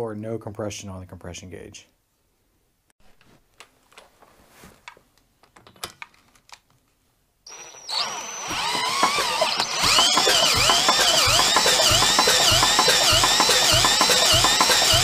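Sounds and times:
cordless drill whining: 7.5s - 15.0s.

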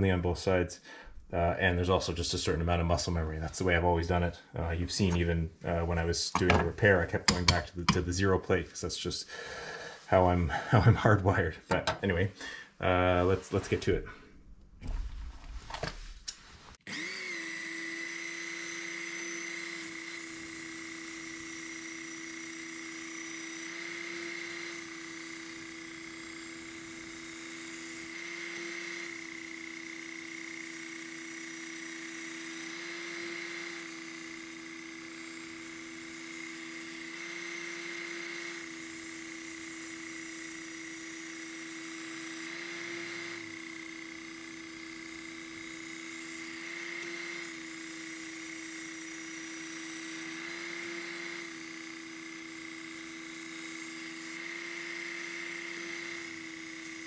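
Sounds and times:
sharpener motor whine: 16.8s - 57.0s.

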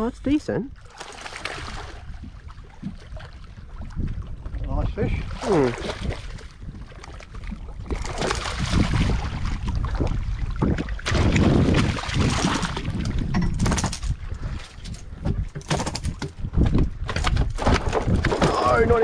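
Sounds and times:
fish splashing at water surface: 0.9s - 2.2s, 7.9s - 10.2s
wind buffeting microphone: 1.5s - 19.0s
sharp knocks: 15.2s - 16.5s.

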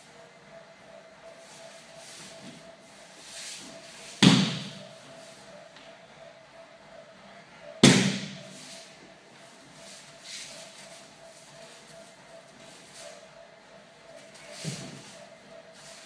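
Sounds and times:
loud slaps on a training mat: 4.2s - 4.8s, 7.8s - 8.4s.

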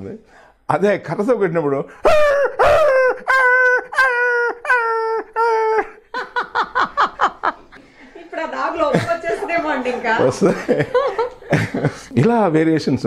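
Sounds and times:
man imitating dog yelping: 2.0s - 6.0s.

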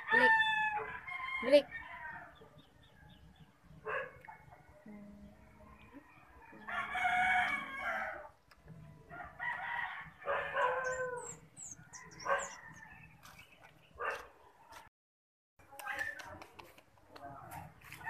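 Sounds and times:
rooster crowing: 0.0s - 2.3s, 6.2s - 8.3s, 9.1s - 13.1s.

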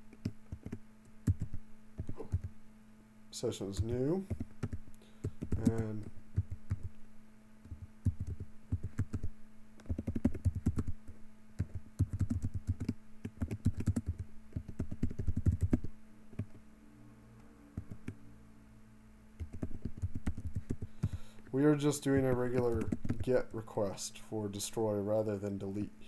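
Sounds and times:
typing on computer keyboard: 0.1s - 2.5s, 4.3s - 6.9s, 7.7s - 11.0s, 11.6s - 16.6s, 19.4s - 21.1s, 22.4s - 23.3s.

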